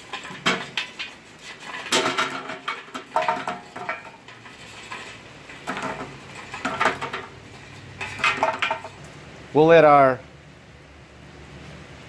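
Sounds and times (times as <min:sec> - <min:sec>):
charcoal clattering onto coals: 0:00.0 - 0:09.2.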